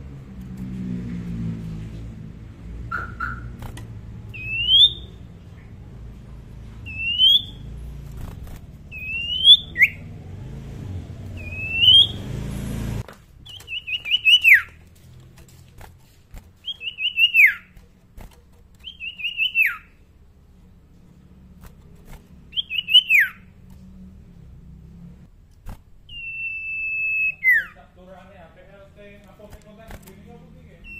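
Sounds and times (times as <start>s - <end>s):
bird rising whistles: 4.4s - 5.2s, 6.9s - 7.7s, 8.9s - 10.1s, 11.3s - 12.4s, 22.5s - 23.4s, 26.1s - 27.7s.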